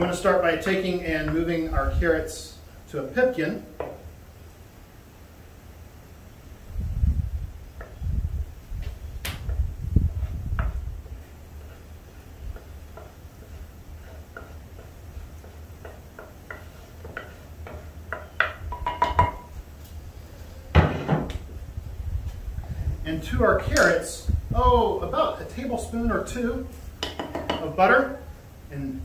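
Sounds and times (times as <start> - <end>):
pottery clicks and knocks: 14.3 - 19.5, 27.0 - 27.7.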